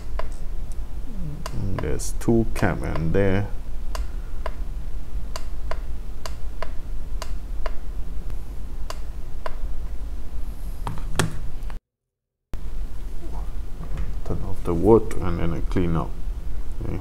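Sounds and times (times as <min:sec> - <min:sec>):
steady low hum: 0:00.0 - 0:11.8, 0:12.6 - 0:17.0
light regular ticks: 0:01.4 - 0:01.9.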